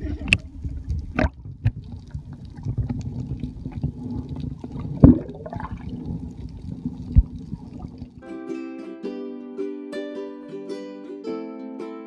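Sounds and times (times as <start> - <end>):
muffled underwater rumble: 0.0 - 8.2
water gurgles: 0.0 - 8.2
sharp knocks underwater: 0.2 - 8.2.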